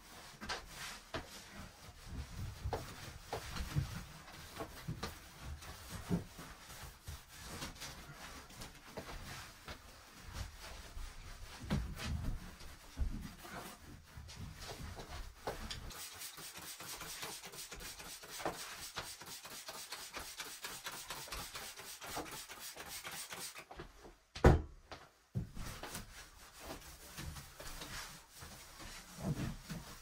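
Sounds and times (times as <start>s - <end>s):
paper towel wiping wood: 0.1s - 23.8s, 25.6s - 30.0s
soft bumps and knocks: 23.8s - 26.0s.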